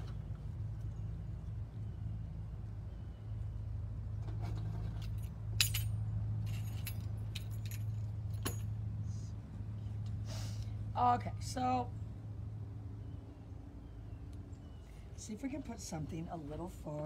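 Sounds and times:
light metallic jingling: 4.8 - 9.0.

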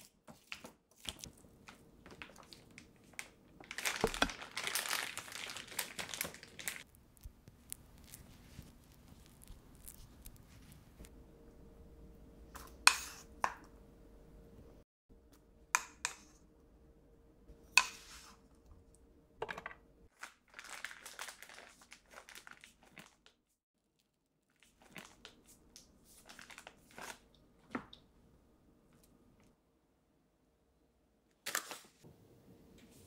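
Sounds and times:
plastic piping bag crinkling: 1.0 - 11.0, 20.1 - 23.4, 24.6 - 27.2.

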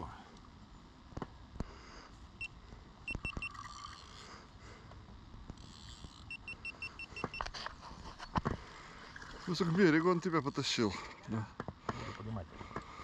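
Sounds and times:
fishing reel drag clicking: 5.5 - 6.4.

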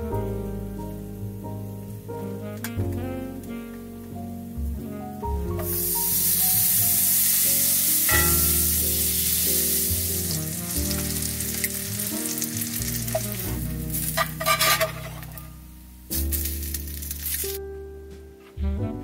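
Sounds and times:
background music: 0.0 - 19.0
food sizzling in frying pan: 5.6 - 17.6.

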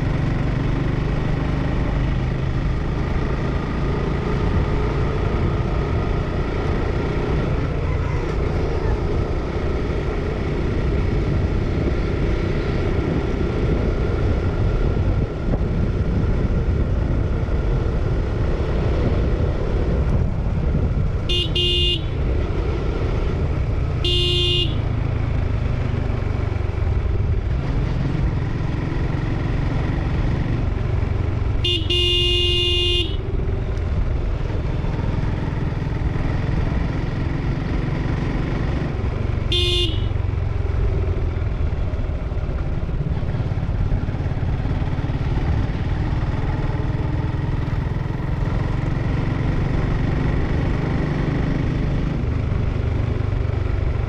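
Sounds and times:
motorcycle engine running: 0.0 - 54.0
horn beeping: 21.3 - 22.2, 24.0 - 24.9, 31.6 - 33.4, 39.4 - 40.2.

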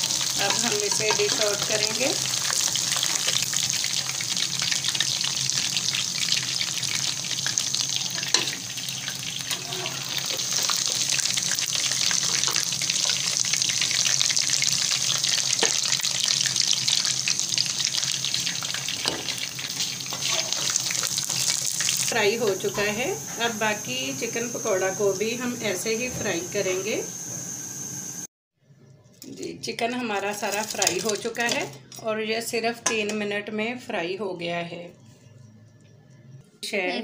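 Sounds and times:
deep-frying sizzle: 0.0 - 28.2.

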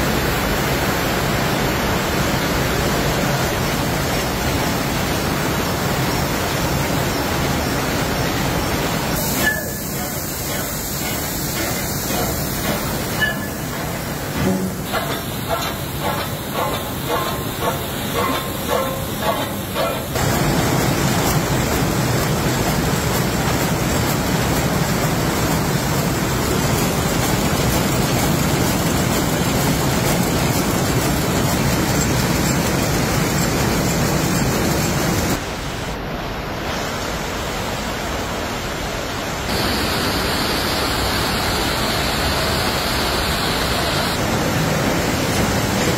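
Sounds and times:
rhythmic machinery clatter: 9.4 - 35.4
weaving looms din: 9.4 - 35.4.

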